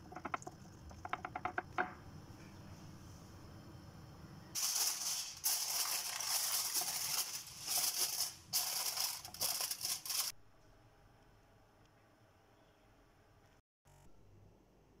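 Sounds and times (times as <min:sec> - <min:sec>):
aluminium foil crinkling: 0:04.6 - 0:10.4.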